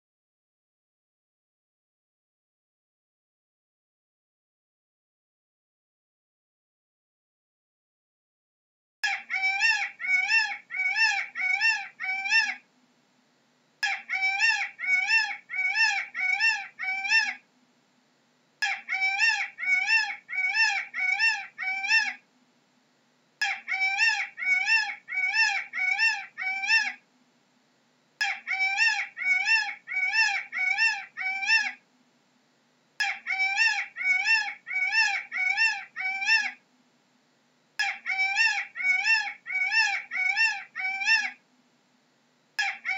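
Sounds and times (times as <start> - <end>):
peacock calling: 9.0 - 12.6, 13.8 - 17.4, 18.6 - 22.2, 23.4 - 27.0, 28.2 - 31.8, 33.0 - 36.6, 37.8 - 41.4, 42.6 - 42.9.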